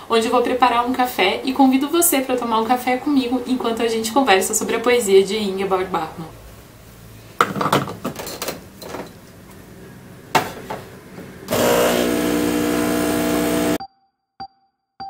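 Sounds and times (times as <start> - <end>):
espresso machine pump buzzing: 11.5 - 13.8.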